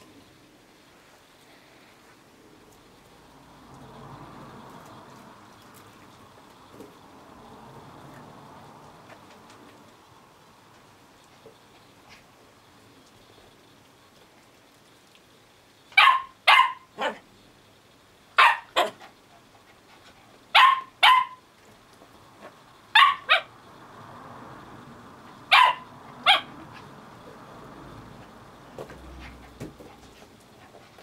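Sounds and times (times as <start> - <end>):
small dog barking: 16.0 - 17.2, 18.4 - 19.0, 20.5 - 21.4, 22.9 - 23.5, 25.5 - 26.9.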